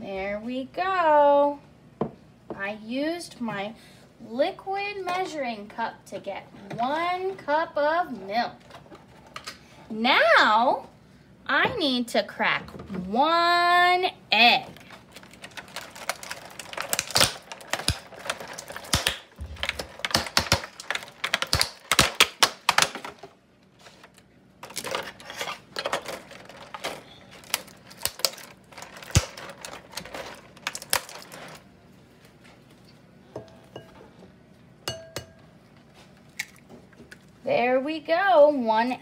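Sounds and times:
plastic egg carton crackling: 14.7s - 31.7s
egg tapping on ceramic bowl: 34.9s - 35.4s.

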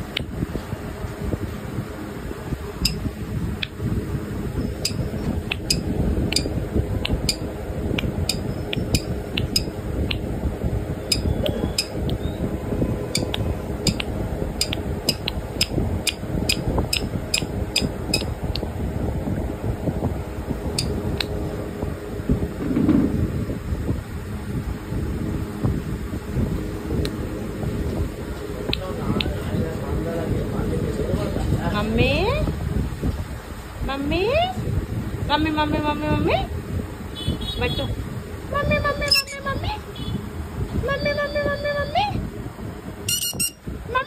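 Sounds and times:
low fan noise: 0.0s - 44.0s
sharp irregular clicks: 13.2s - 18.3s.

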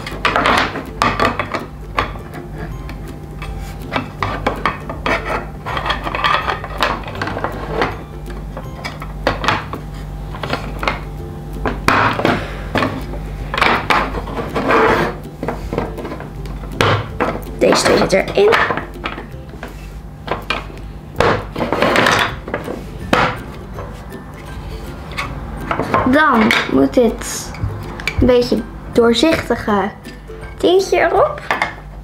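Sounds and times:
plastic toy parts clicking and scraping: 3.4s - 7.9s.

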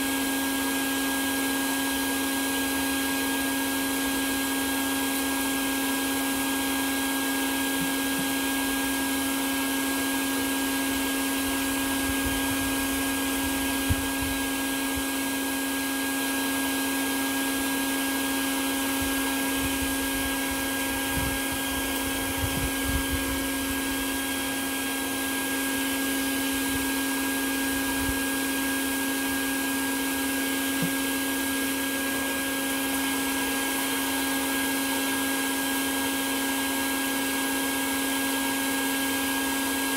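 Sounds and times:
vacuum motor humming: 0.0s - 39.9s.

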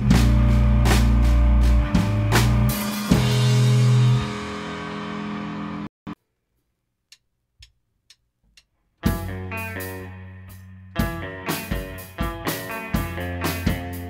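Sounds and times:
rock band playing: 0.0s - 5.9s, 9.0s - 14.0s.

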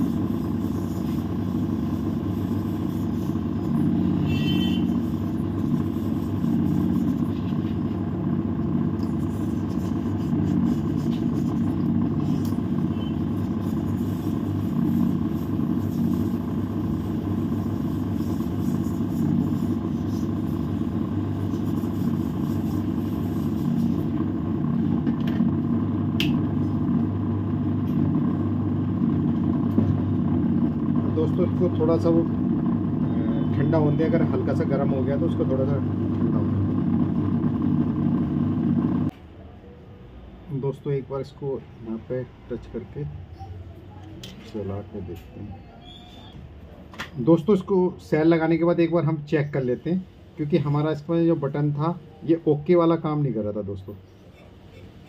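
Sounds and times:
hot-air gun fan humming: 0.0s - 39.2s.

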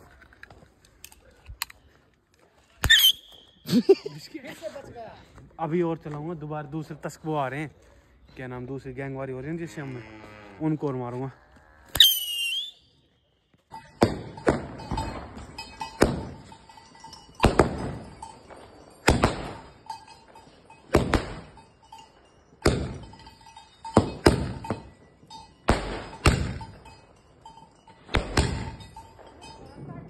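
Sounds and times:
shrill whistle: 2.8s - 3.7s, 12.0s - 13.0s
firecracker bangs: 14.0s - 16.4s, 17.4s - 18.2s, 19.0s - 19.8s, 20.9s - 21.6s, 22.6s - 23.1s, 24.0s - 24.9s, 25.7s - 26.8s, 28.1s - 28.9s.

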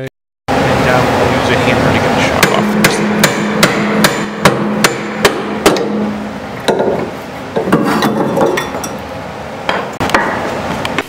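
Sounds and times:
hammer striking metal: 2.4s - 9.0s, 9.7s - 10.5s
metal clanks: 2.4s - 9.0s.

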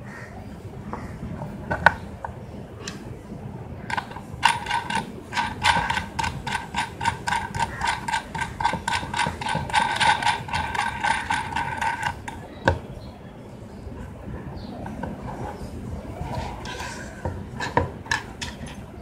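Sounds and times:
ratcheting hand tool clicking: 3.9s - 12.8s.

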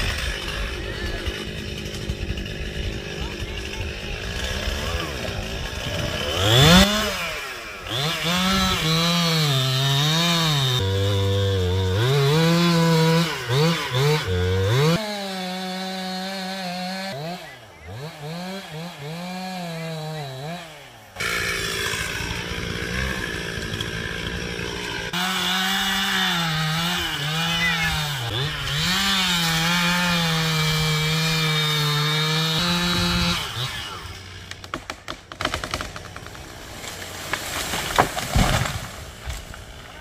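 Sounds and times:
chainsaw cutting wood: 0.0s - 40.0s
wood cracks and knocks: 34.5s - 39.9s.

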